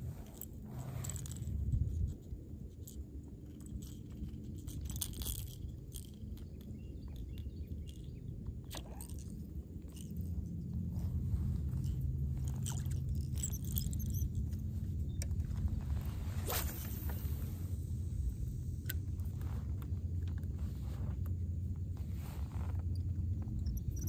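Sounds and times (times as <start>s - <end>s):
low steady rumble: 0.0s - 24.0s.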